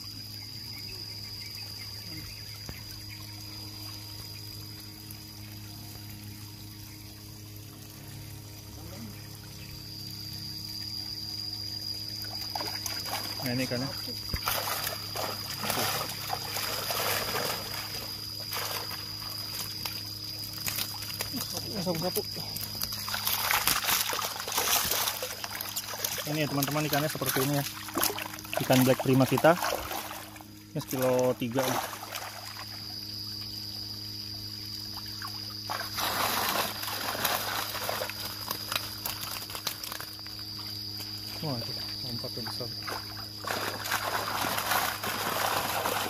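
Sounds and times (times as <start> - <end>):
steady hum: 0.0 - 41.6
water splashing and trickling: 0.0 - 46.0
loud water splash: 35.7 - 38.0, 43.4 - 46.0.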